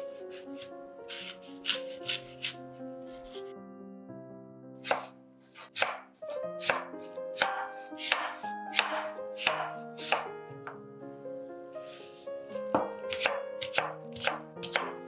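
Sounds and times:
soft background music: 0.0s - 15.0s
knife chopping apple on board: 0.3s - 3.4s, 4.8s - 10.8s, 12.7s - 15.0s.

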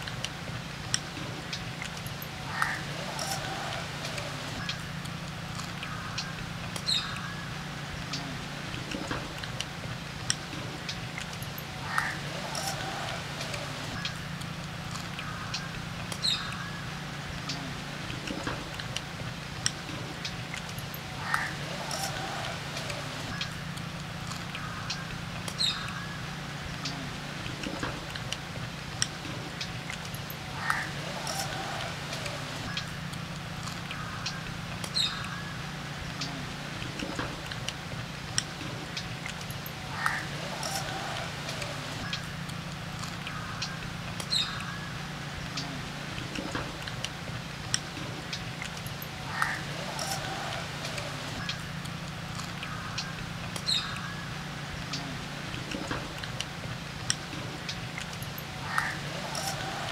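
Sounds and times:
small clicks: 0.0s - 7.3s, 8.0s - 16.7s, 17.4s - 26.0s, 26.8s - 35.4s, 36.1s - 44.7s, 45.4s - 54.1s, 54.8s - 59.9s
small birds chirping: 0.0s - 59.9s
bird chirps: 5.6s - 9.1s, 14.9s - 17.6s, 24.3s - 27.0s, 33.6s - 36.3s, 43.1s - 45.7s, 52.5s - 55.0s
sharp clicks: 17.4s - 26.0s, 26.8s - 35.4s.

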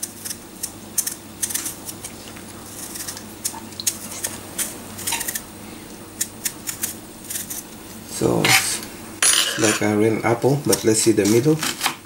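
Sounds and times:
knife peeling cucumber: 0.0s - 5.5s, 6.2s - 7.6s.

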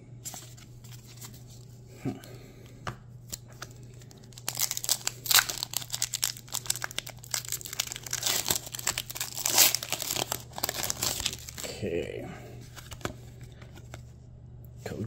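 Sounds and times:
foil wrapper crinkling and tearing: 3.3s - 11.8s.

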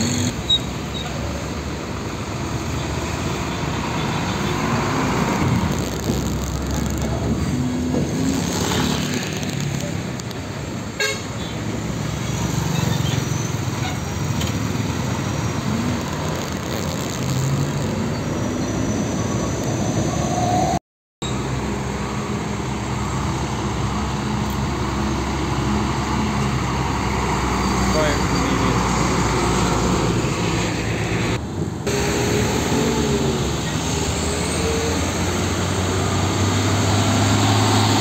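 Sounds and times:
traffic noise: 0.0s - 38.0s
truck diesel engines: 0.0s - 38.0s
vehicle horn tooting: 11.0s - 11.4s.

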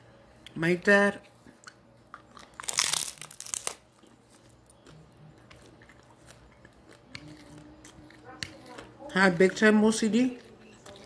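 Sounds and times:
quiet chewing: 1.2s - 2.7s, 3.8s - 11.0s
teeth tearing tortilla: 1.6s - 9.5s.

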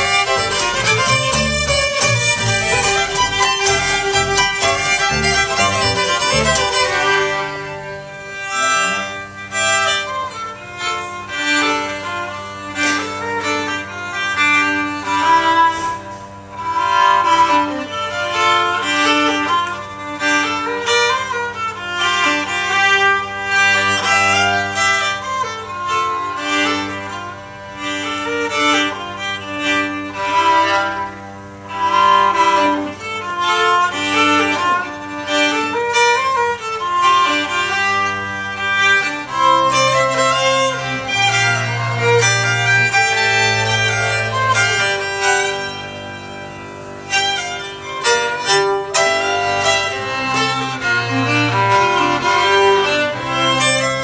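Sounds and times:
upright bass: 0.0s - 17.9s
fiddles playing folk tune: 0.0s - 54.0s.

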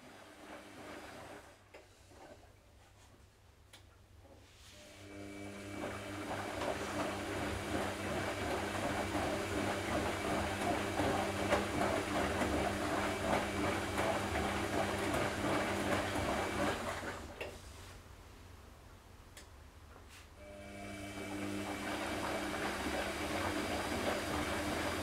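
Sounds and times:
washing machine motor hum: 0.0s - 2.5s, 4.8s - 17.8s, 20.4s - 25.0s.

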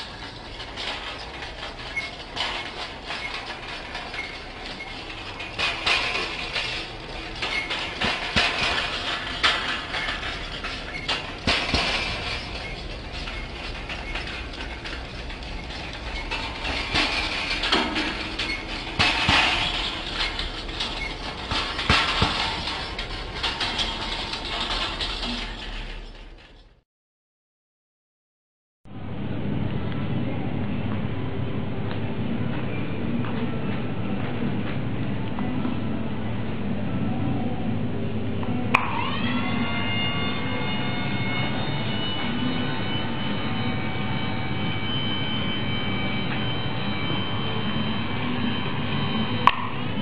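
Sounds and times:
metal frame clattering on stone: 0.0s - 26.8s.

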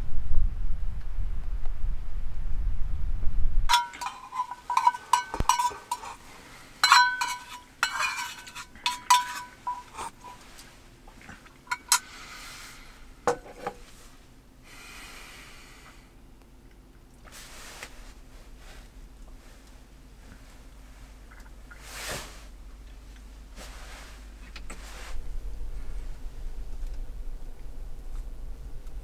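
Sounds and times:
wind rumbling on microphone: 0.0s - 3.8s, 24.7s - 29.0s
fork clinking on metal dish: 3.7s - 6.2s, 6.8s - 10.4s.

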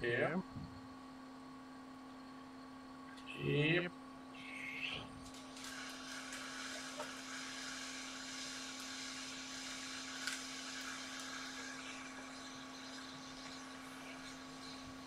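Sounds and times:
constant low hum: 0.0s - 15.0s
hot air blower hissing: 4.9s - 15.0s.

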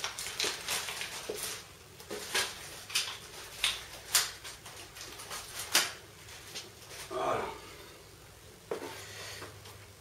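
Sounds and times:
objects rustling and clicking: 0.0s - 7.1s.

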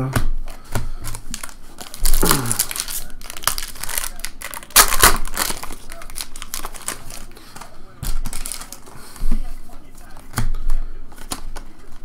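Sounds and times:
foil crackling rips: 1.1s - 7.3s, 8.2s - 8.8s
foil wrapper crinkling: 1.1s - 9.2s.

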